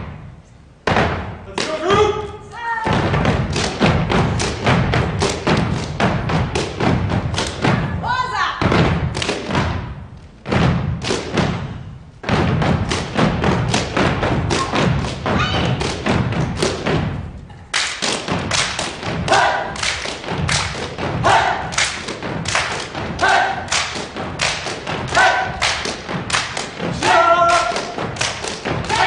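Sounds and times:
rubber boots stamping and slapping: 8.6s - 17.2s
group shouts: 19.3s - 19.8s, 21.2s - 21.7s, 23.2s - 23.7s, 25.1s - 25.6s.

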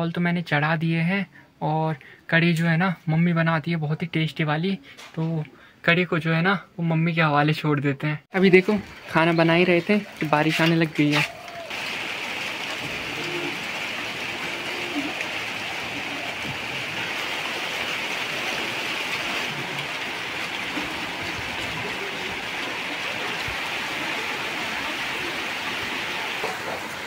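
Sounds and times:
heavy rain pouring: 8.8s - 27.0s.

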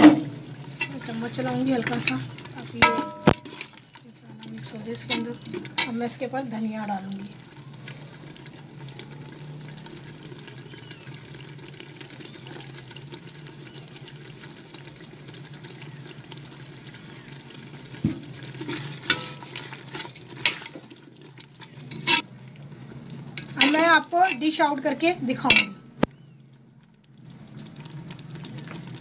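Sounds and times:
curry sizzling in a pot: 0.0s - 29.0s
spoon scraping and clinking pot: 1.8s - 3.9s, 5.0s - 6.0s, 18.6s - 20.8s, 21.6s - 22.2s, 23.4s - 24.5s, 25.4s - 25.9s.

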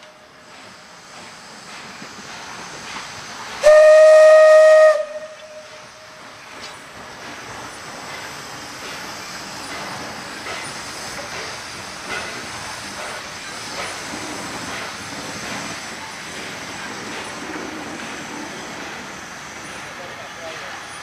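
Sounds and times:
steam locomotive hissing and running: 0.0s - 21.0s
steam whistle blast: 3.6s - 5.9s.

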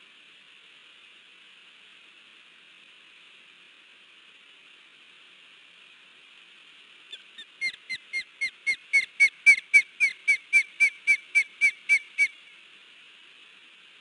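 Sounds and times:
osprey alarm calls: 7.1s - 12.4s.

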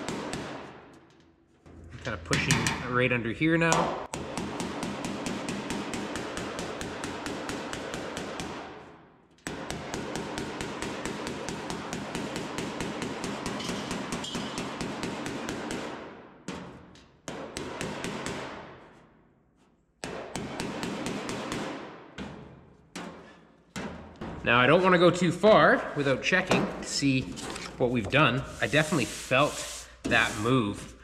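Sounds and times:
hammer slapping steel body panel: 0.0s - 0.9s, 3.8s - 18.9s, 20.0s - 24.4s.

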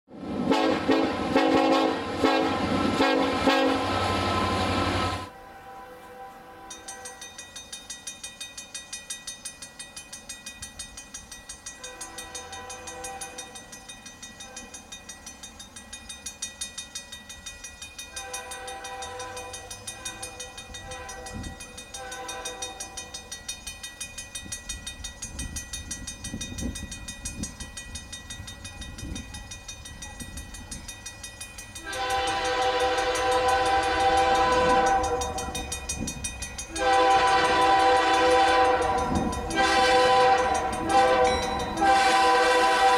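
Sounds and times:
train rumble: 0.1s - 42.9s
locomotive horn blasts: 0.4s - 7.2s, 11.8s - 13.4s, 18.1s - 22.9s, 31.8s - 35.6s, 36.7s - 42.9s
crossing bell ringing: 1.2s - 42.9s.

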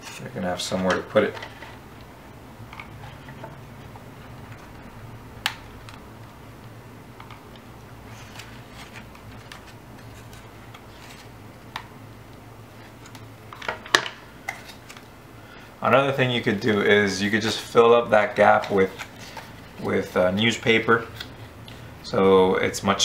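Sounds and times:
low steady hum: 0.0s - 23.0s
paper rustling: 8.1s - 11.4s, 17.4s - 21.4s.

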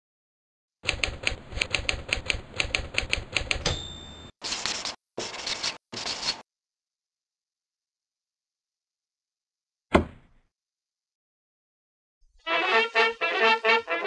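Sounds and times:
typewriter carriage bell ding: 3.5s - 4.4s
marker pen scratching on paper: 4.4s - 6.4s.

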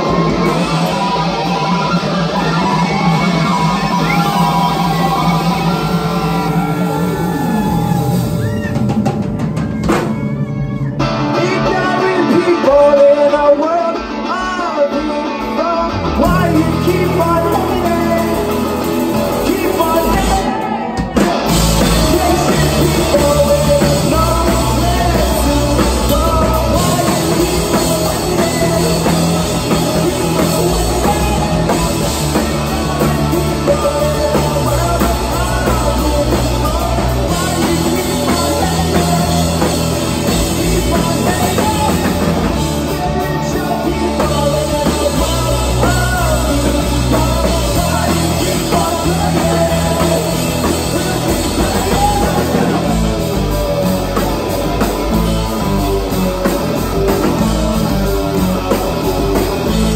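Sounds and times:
person singing lead vocal: 0.0s - 9.0s, 9.6s - 59.9s
live rock band playing: 0.0s - 59.9s.

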